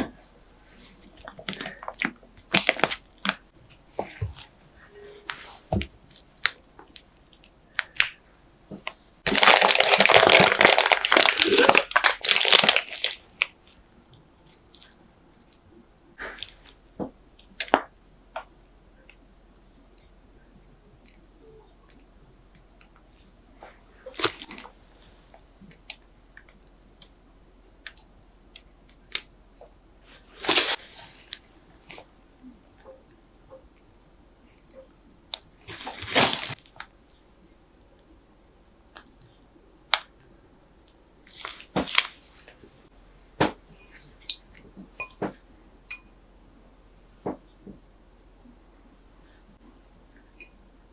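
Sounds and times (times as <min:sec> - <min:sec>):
plastic bag crinkling: 0:01.1 - 0:03.4, 0:09.2 - 0:13.8, 0:24.1 - 0:24.8, 0:35.3 - 0:36.9, 0:41.2 - 0:42.4.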